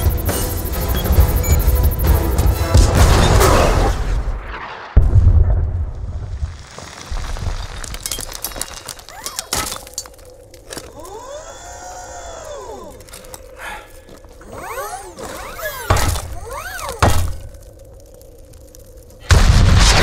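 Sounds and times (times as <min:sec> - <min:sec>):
whirring tones: 0:00.0 - 0:03.5, 0:10.6 - 0:19.3
crackling and breaking debris: 0:04.2 - 0:11.2, 0:12.8 - 0:20.0.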